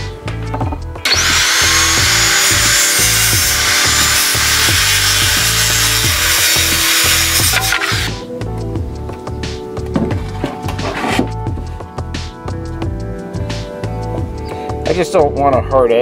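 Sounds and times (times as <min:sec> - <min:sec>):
circular saw cutting wood: 0:01.0 - 0:08.3.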